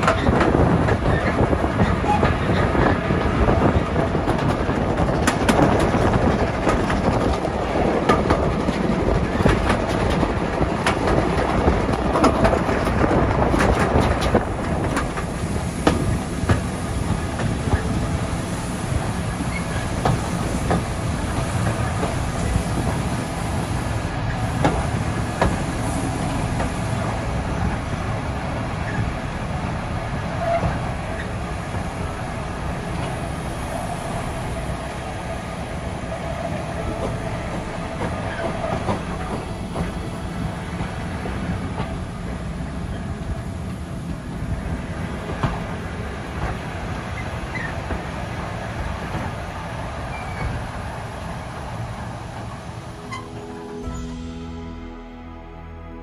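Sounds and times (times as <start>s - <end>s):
clicks over rail joints: 0.0s - 18.0s
train wheels rumbling: 0.0s - 54.9s.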